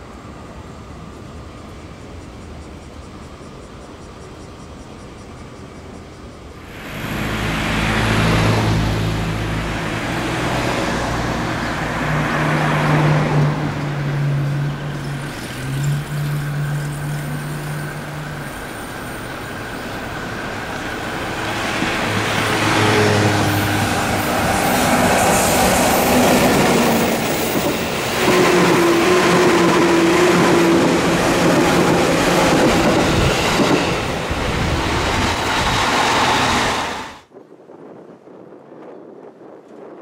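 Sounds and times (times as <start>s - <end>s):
vehicles passing: 6.6s - 37.2s
truck engine hum: 6.7s - 33.5s.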